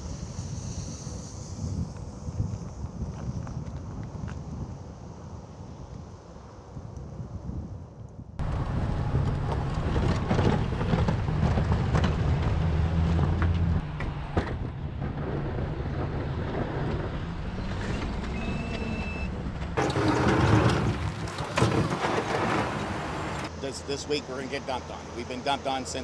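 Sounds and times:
plow blade scraping snow: 0:19.8 - 0:23.8.

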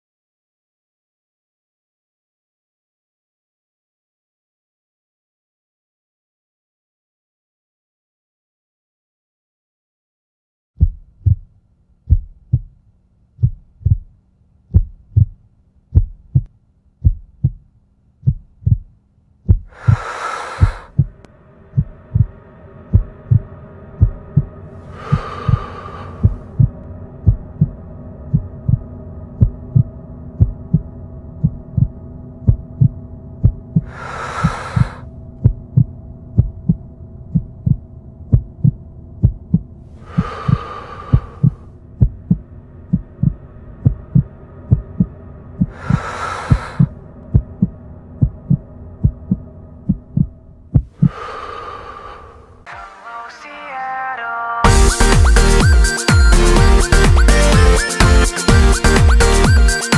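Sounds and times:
heartbeat thumping: 0:10.8 - 0:12.8, 0:13.4 - 0:51.3, 0:54.7 - 0:59.8
steady drone: 0:19.8 - 0:53.0, 0:54.6 - 0:59.9
rushing whooshes: 0:21.0 - 0:30.8.

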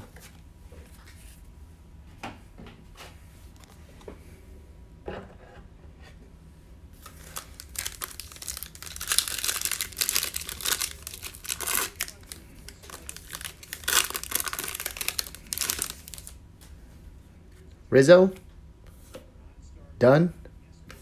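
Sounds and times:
foil wrapper crinkling and tearing: 0:07.0 - 0:16.4.

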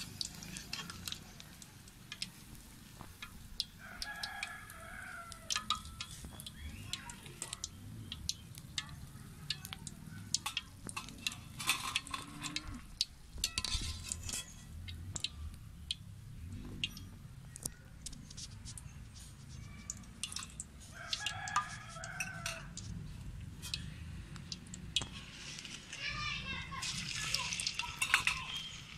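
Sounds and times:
sharp crackles and clicks: 0:00.0 - 0:28.9
rooster crowing: 0:03.8 - 0:05.7, 0:20.9 - 0:22.8.

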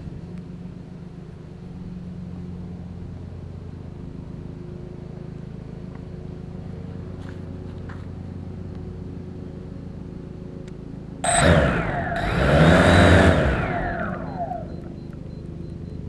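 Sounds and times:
steady low hum: 0:00.0 - 0:16.0
vehicle passing by: 0:11.2 - 0:15.0.

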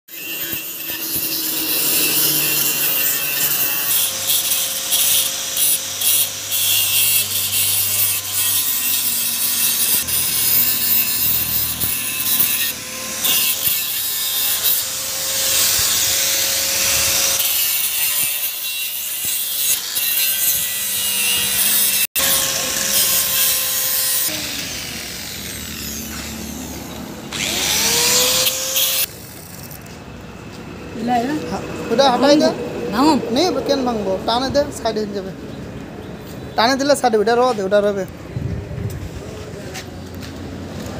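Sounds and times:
angle grinder grinding metal: 0:00.1 - 0:30.0.

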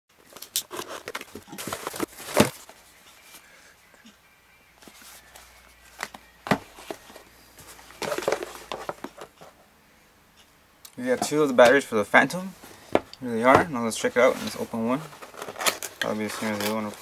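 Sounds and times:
cardboard rustling and scraping: 0:00.2 - 0:02.8, 0:04.8 - 0:09.6, 0:12.6 - 0:17.0.

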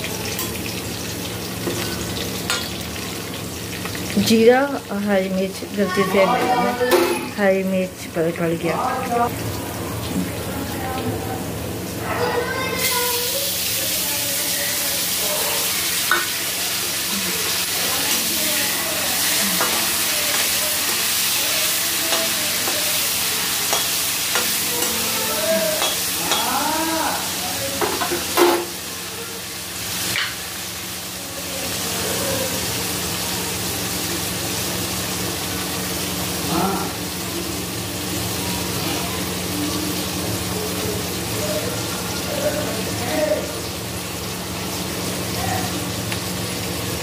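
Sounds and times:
vegetables sizzling in a pan: 0:00.0 - 0:47.0
spatula stirring in a pan: 0:14.9 - 0:28.9.

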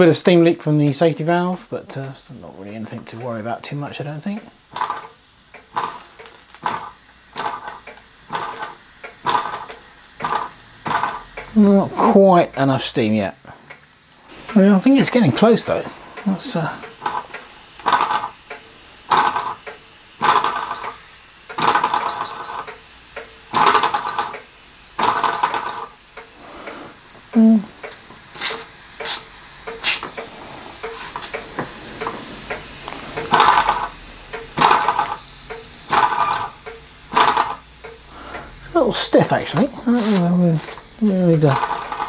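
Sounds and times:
short hisses of steam: 0:14.1 - 0:22.7, 0:25.0 - 0:27.1, 0:27.8 - 0:38.8.

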